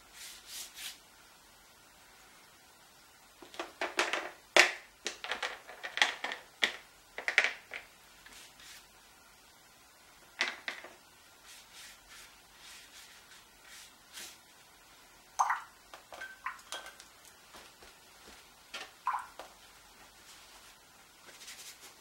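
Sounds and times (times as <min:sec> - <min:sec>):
paintbrush swishing on paper: 0:00.0 - 0:01.0, 0:08.3 - 0:08.9, 0:11.4 - 0:14.5, 0:19.9 - 0:22.0.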